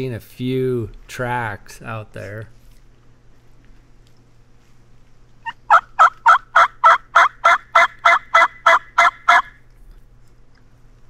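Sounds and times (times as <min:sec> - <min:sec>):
turkey call yelps: 0:05.4 - 0:09.6.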